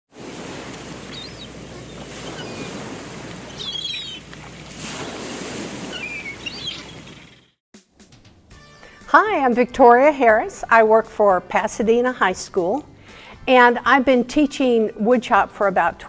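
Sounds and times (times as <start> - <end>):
ocean surf washing: 0.1 - 7.4
high bird chirps: 1.1 - 2.8, 3.5 - 4.2, 5.9 - 7.6.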